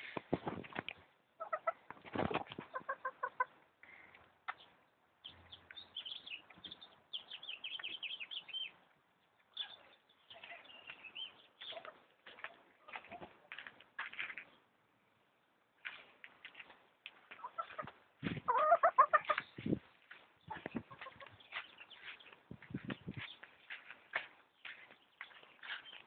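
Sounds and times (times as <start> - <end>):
hens clucking: 1.4 - 3.6, 17.2 - 24.0.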